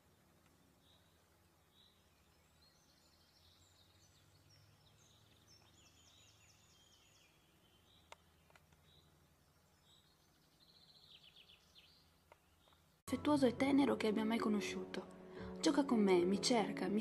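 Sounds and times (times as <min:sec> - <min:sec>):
birds chirping and trilling: 0:00.0 - 0:17.0
low steady hum: 0:00.0 - 0:17.0
faint clicks: 0:08.0 - 0:08.9.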